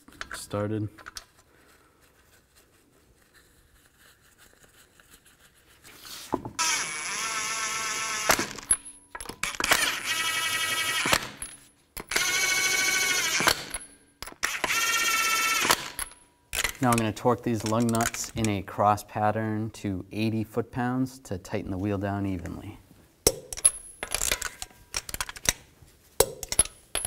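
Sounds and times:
impact wrench hammering rattle: 8.2 - 18.4, 26.2 - 27.0.

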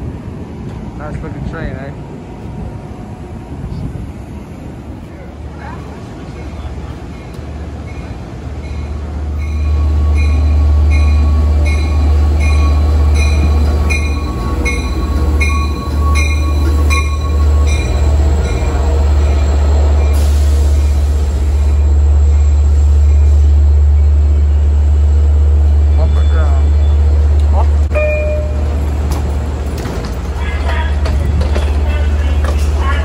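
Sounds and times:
locomotive engine rumble: 0.0 - 33.0
locomotive bell ringing: 7.2 - 24.2, 27.9 - 28.9.

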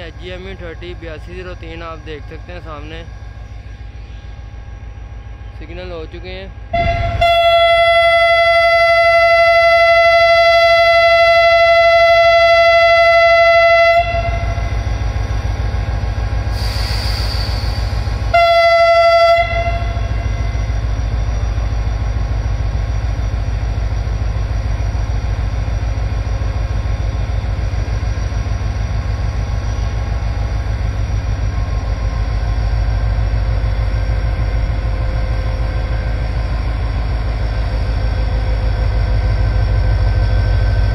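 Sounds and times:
diesel engine low rumble: 0.0 - 40.9
locomotive horn blast: 6.7 - 14.6, 18.3 - 20.3.

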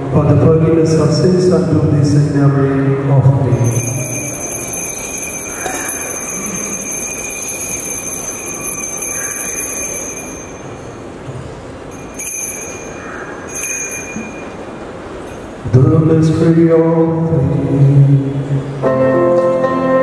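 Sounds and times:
altar bell ringing: 3.5 - 15.7.

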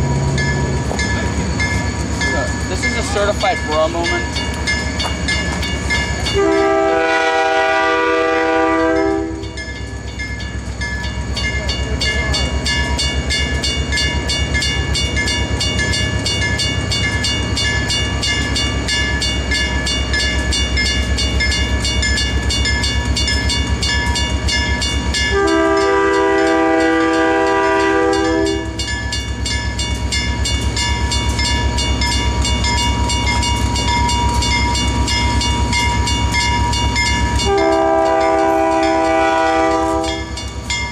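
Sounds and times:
locomotive air horn blasts: 6.3 - 9.4, 25.3 - 28.8, 37.4 - 40.3.

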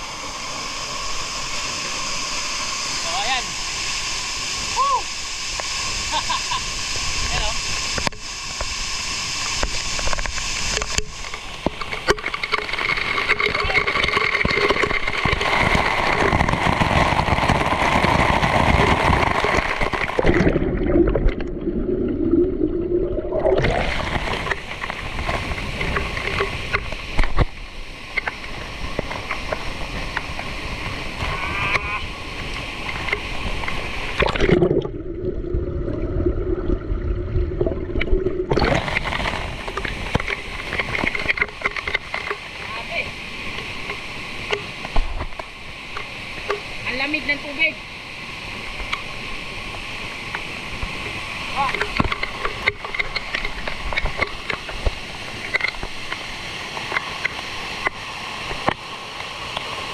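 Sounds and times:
water splashing on microphone: 0.0 - 59.9
waterfall crashing: 12.2 - 20.3.

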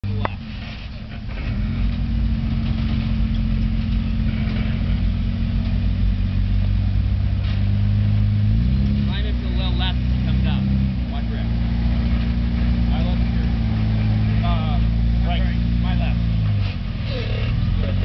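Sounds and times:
truck engine running at low revs: 0.0 - 18.0.

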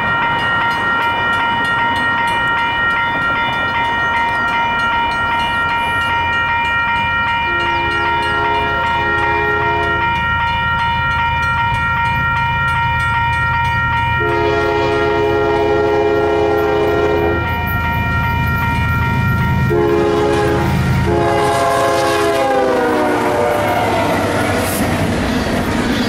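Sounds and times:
locomotive air horn blasts: 6.7 - 11.4, 12.6 - 18.6, 19.6 - 24.8.

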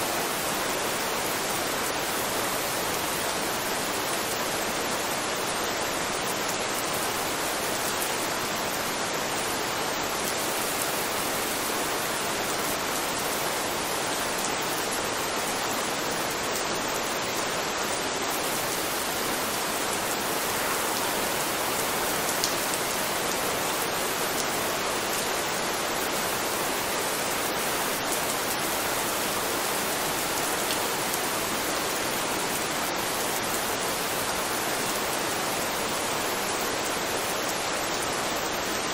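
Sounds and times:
steady rain hiss: 0.0 - 38.9.

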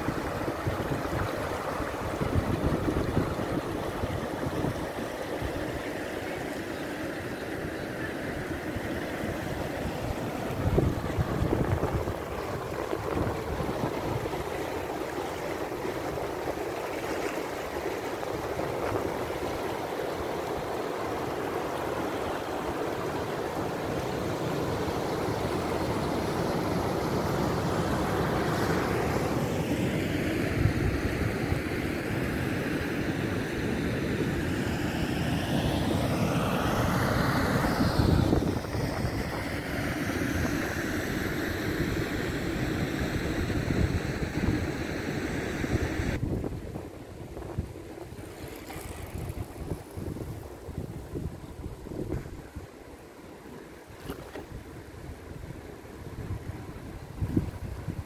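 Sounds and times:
wind buffeting microphone: 0.0 - 5.7, 9.8 - 15.0, 35.8 - 52.7, 54.5 - 58.0.

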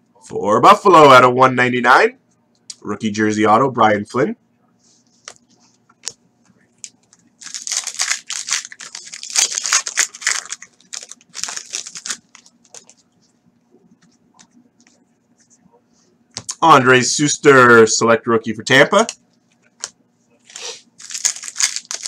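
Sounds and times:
plastic wrapper crackling: 7.0 - 13.0, 19.8 - 22.0.

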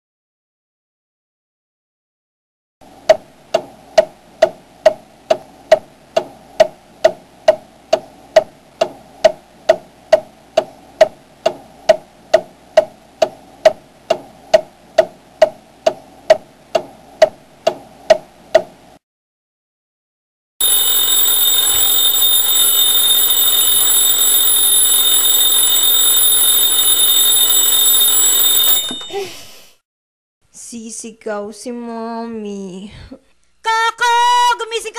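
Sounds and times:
clock ticking: 3.0 - 18.7
alarm clock buzzing: 20.6 - 29.2.

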